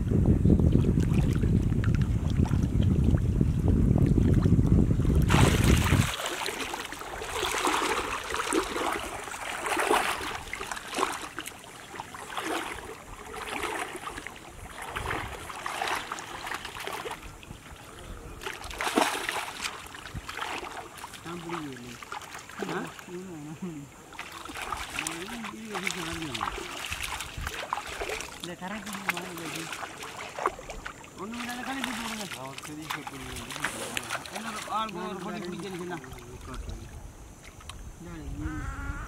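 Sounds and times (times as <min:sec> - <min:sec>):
wind buffeting microphone: 0:00.0 - 0:11.2, 0:12.6 - 0:18.8, 0:19.8 - 0:20.6, 0:26.0 - 0:28.3, 0:36.4 - 0:39.0
water splashing and sloshing: 0:00.0 - 0:38.2.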